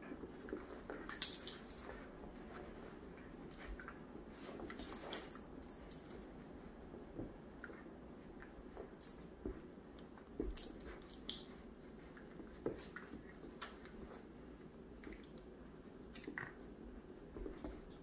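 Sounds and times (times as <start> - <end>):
metal collar tags jingling: 1.1 - 1.9, 4.7 - 6.2, 10.6 - 11.3.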